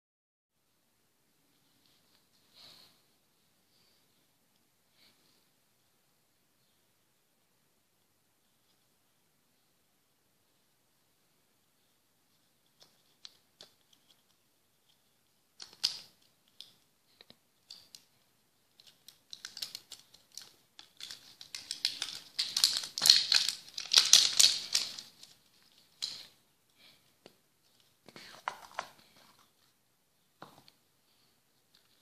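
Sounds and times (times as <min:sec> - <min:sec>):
plastic capsule clicking and rattling: 0:15.6 - 0:16.8, 0:18.7 - 0:26.3.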